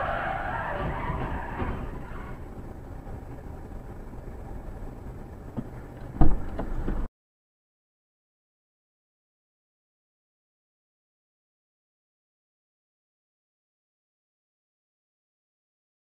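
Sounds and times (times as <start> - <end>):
rushing noise: 0.0 - 7.1
traffic low rumble: 0.0 - 7.1
sharp thump: 5.6 - 7.0.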